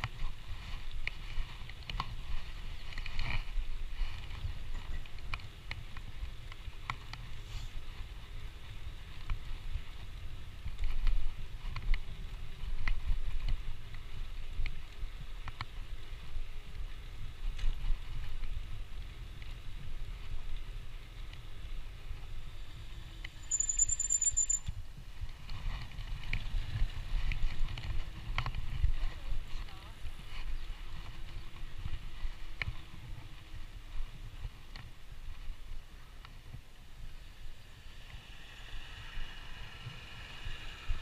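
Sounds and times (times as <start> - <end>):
wind rumbling on microphone: 0.0 - 41.0
short high squeak: 23.4 - 24.7.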